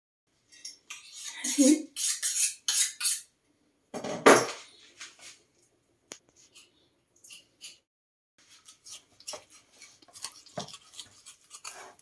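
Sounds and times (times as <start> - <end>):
kitchen items clattering: 4.0 - 5.1.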